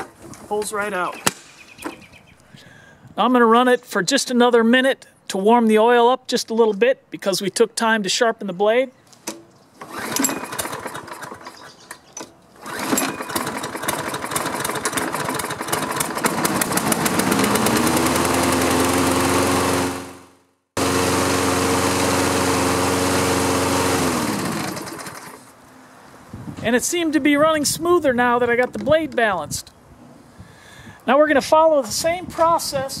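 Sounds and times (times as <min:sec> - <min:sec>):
lawn mower engine running: 0:09.8 - 0:12.0, 0:12.6 - 0:25.5.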